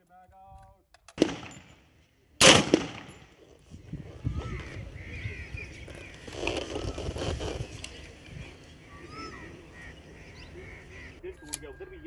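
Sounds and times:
rifle shots: 0:01.2 - 0:03.4.

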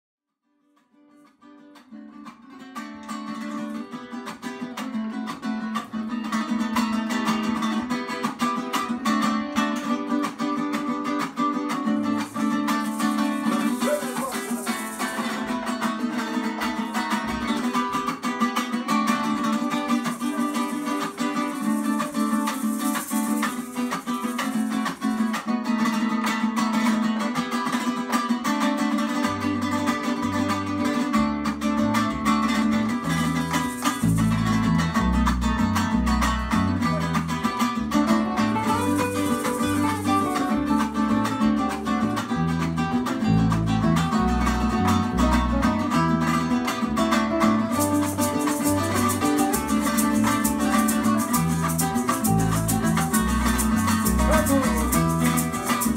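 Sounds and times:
acoustic guitars strummed and picked: 0:00.7 - 0:55.9
high plucked string instrument: 0:00.8 - 0:55.9
low bass notes: 0:33.0 - 0:41.2.

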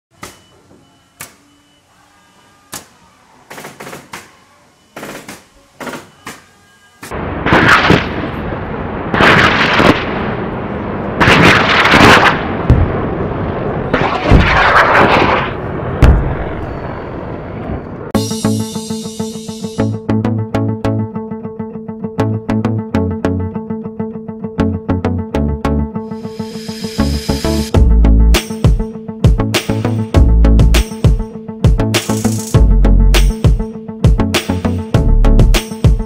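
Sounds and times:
loud rushing blasts: 0:07.2 - 0:17.6
deep booms: 0:12.6 - 0:13.2, 0:15.9 - 0:16.8.

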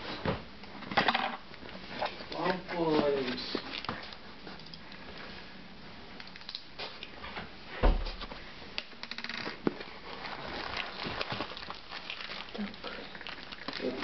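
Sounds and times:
crinkling: 0:01.4 - 0:05.5, 0:08.1 - 0:14.0
heavy thump: 0:07.8 - 0:08.4.

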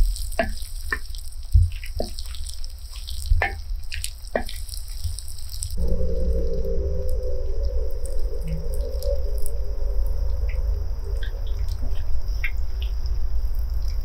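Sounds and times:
low rumble: 0:05.7 - 0:14.0.

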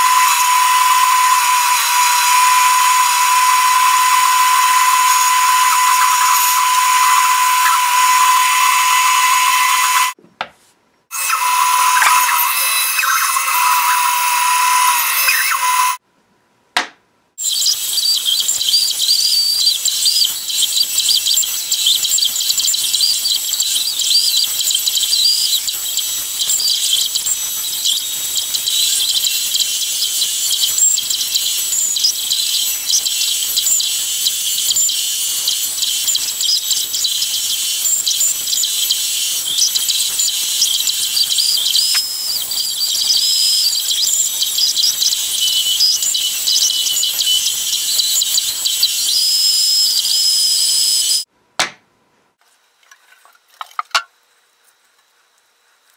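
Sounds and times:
bandsaw cutting wood: 0:00.0 - 0:10.2, 0:11.1 - 0:16.0.

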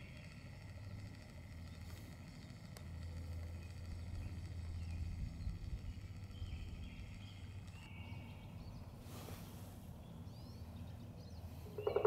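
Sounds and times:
faint songbird chirps: 0:00.0 - 0:12.0
low woodland rumble: 0:00.0 - 0:12.0
brief hiss: 0:09.0 - 0:09.8.

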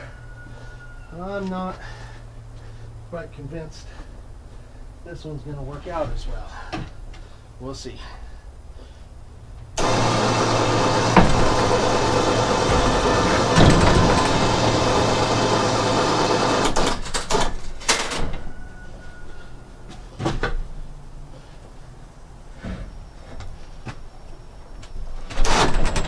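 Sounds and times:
electric winch motor humming: 0:09.8 - 0:17.4.

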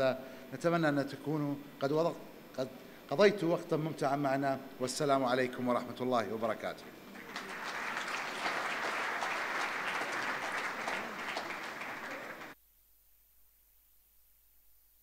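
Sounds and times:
audience applauding: 0:07.1 - 0:12.6.

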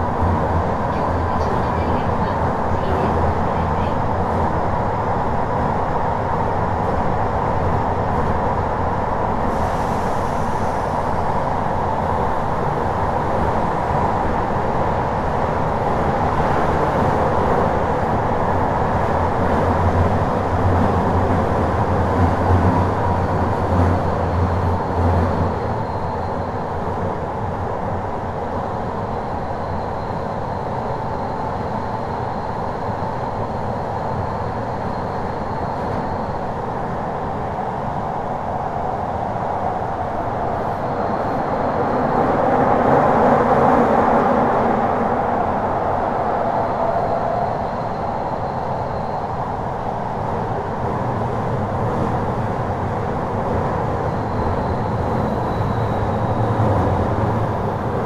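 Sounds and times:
train wheels rumbling on rail: 0:00.0 - 0:58.0
faint high whine: 0:45.8 - 0:50.7, 0:53.8 - 0:58.0.

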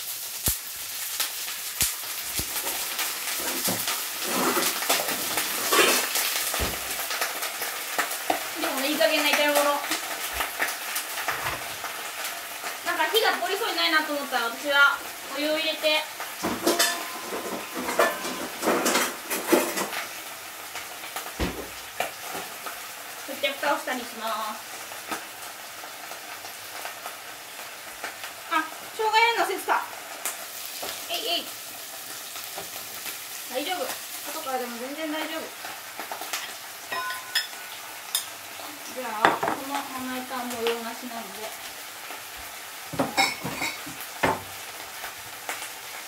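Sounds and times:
water sizzling in hot wok: 0:00.0 - 0:46.0
utensils knocking on pan: 0:16.4 - 0:20.0, 0:36.9 - 0:37.6, 0:42.9 - 0:44.5.

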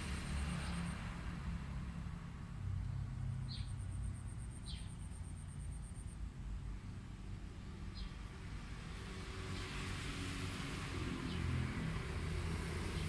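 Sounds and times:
low outdoor rumble: 0:00.0 - 0:09.5.

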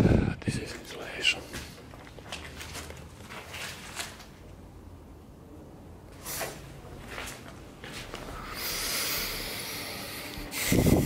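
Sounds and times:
footsteps on gritty concrete: 0:00.7 - 0:04.4, 0:06.5 - 0:08.6.

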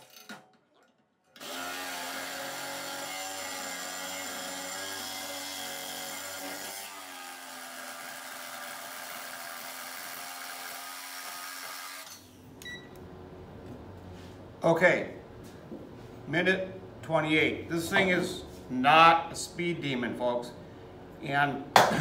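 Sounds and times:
jigsaw cutting metal: 0:00.0 - 0:00.4, 0:01.4 - 0:12.3.

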